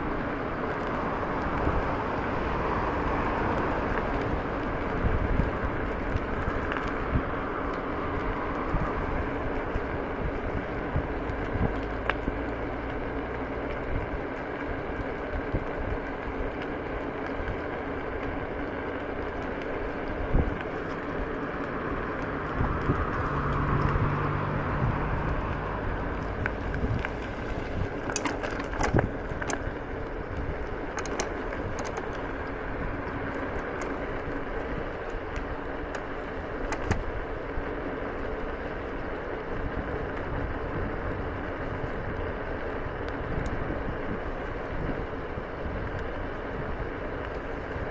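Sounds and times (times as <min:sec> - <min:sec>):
scooter tyres rolling on gravel: 0:00.0 - 0:47.9
sharp clicks and knocks: 0:30.9 - 0:32.2, 0:35.9 - 0:37.1.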